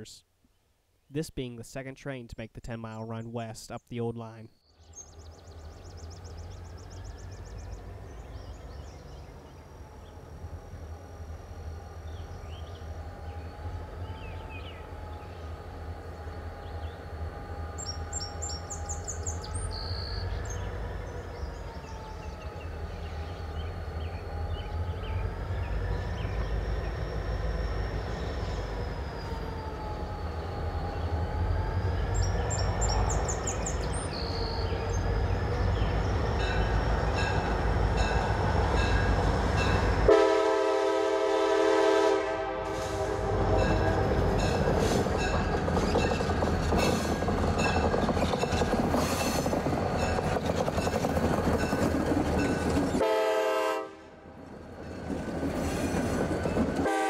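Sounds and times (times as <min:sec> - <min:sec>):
bird chirps: 0:03.1 - 0:10.3, 0:11.7 - 0:15.5, 0:17.8 - 0:29.4, 0:31.8 - 0:37.7
diesel locomotive engine rumble: 0:04.8 - 0:57.0
faint wavering whine: 0:05.2 - 0:19.0, 0:20.2 - 0:40.0.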